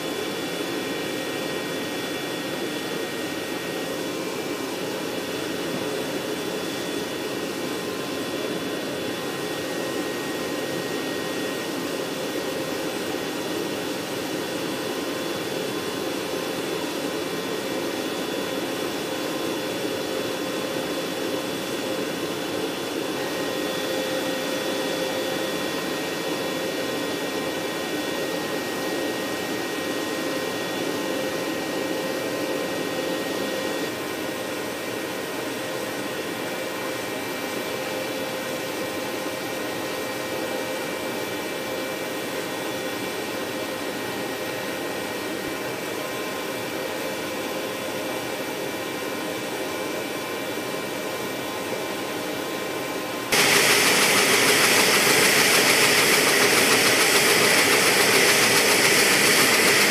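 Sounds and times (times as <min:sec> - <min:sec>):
turbine machinery whine: 0:00.0 - 0:44.5, 0:53.2 - 0:59.9.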